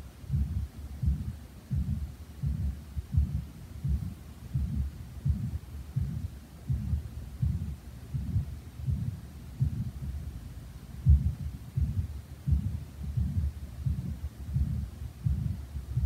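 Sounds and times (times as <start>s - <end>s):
heartbeat through speaker: 0.0s - 16.0s.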